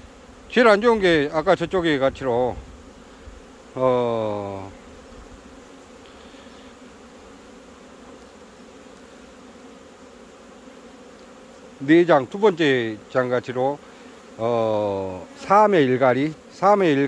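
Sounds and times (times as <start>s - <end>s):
honeybees buzzing: 0.0s - 17.0s
man's drawn-out voice: 3.8s - 4.8s, 14.4s - 17.0s.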